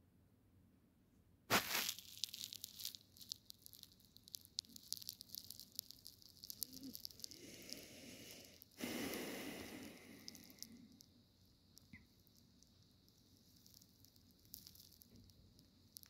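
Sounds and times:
fabric rustling against microphone: 0:01.5 - 0:03.4.

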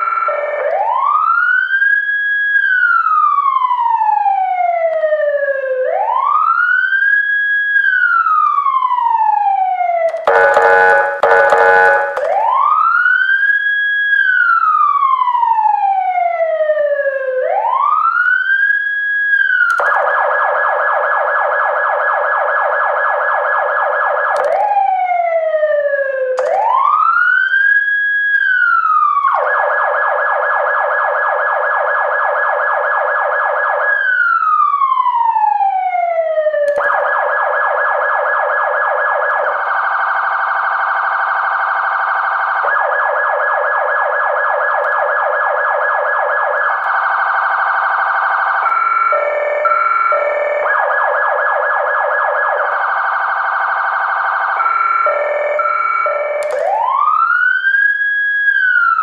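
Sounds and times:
electronic siren wailing and yelping: 0:08.5 - 0:14.8, 0:19.6 - 0:59.0.

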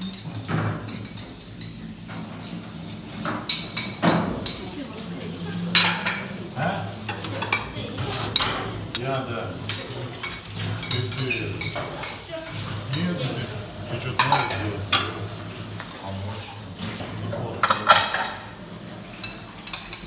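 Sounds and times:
dishes clinking in a sink: 0:00.0 - 0:20.0.

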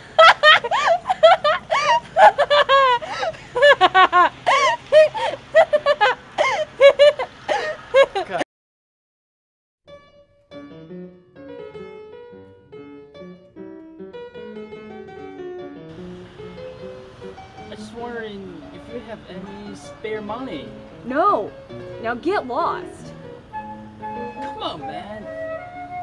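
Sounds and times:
woman laughing hard: 0:00.0 - 0:08.4.

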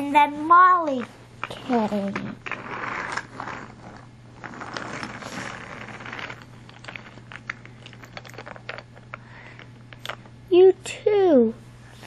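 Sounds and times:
toy rustling and scraping: 0:00.8 - 0:09.2.

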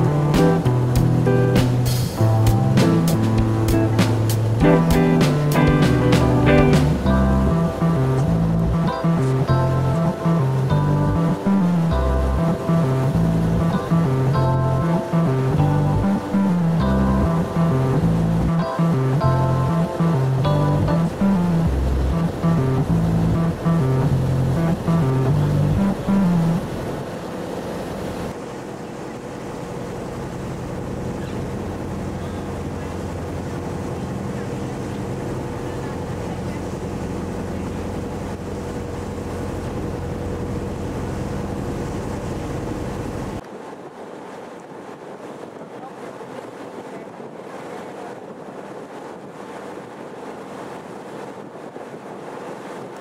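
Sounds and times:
boat engine humming: 0:00.0 - 0:43.4
water noise: 0:00.0 - 0:53.0
wind noise on microphone: 0:39.7 - 0:53.0.

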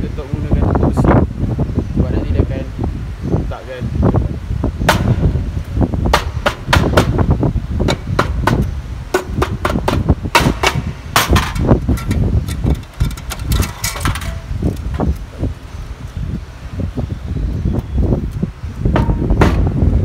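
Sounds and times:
mallet knocking on metal case: 0:07.9 - 0:12.2.

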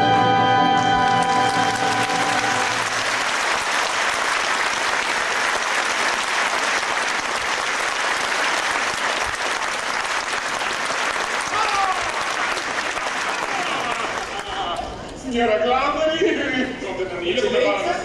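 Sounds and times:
audience applauding: 0:00.8 - 0:14.8.

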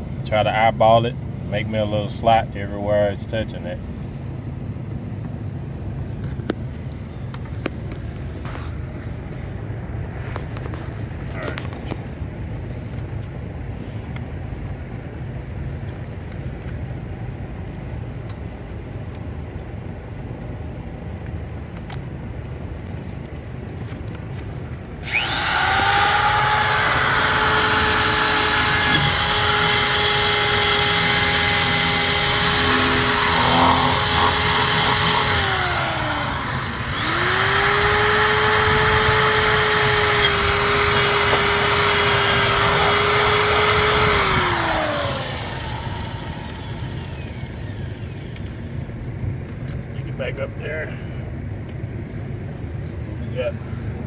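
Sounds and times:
electric drill motor whine: 0:25.0 - 0:48.7.

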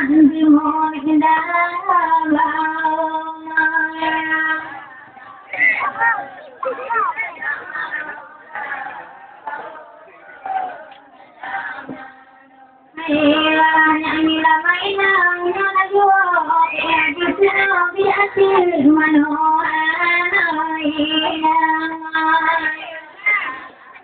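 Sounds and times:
quiet talk: 0:03.4 - 0:13.0, 0:21.1 - 0:24.0.

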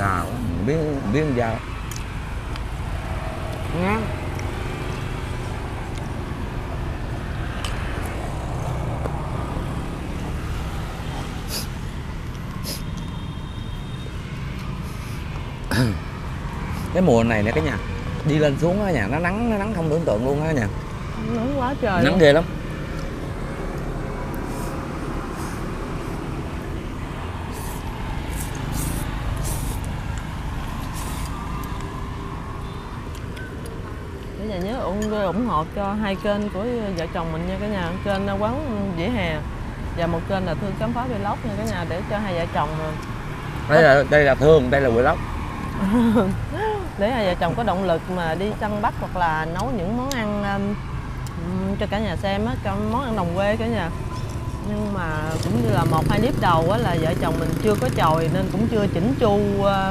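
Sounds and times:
low roadside rumble: 0:00.0 - 0:59.9
noodles being slurped: 0:27.5 - 0:30.0.

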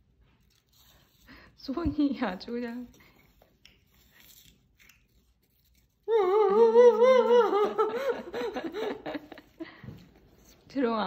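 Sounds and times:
high wavering vocal sound: 0:06.1 - 0:08.2.

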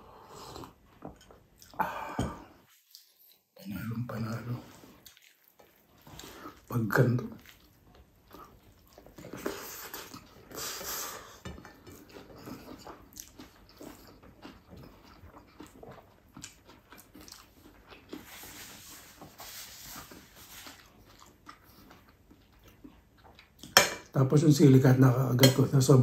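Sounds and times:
wet chewing and smacking: 0:04.8 - 0:10.6, 0:11.4 - 0:19.3, 0:20.0 - 0:23.8.

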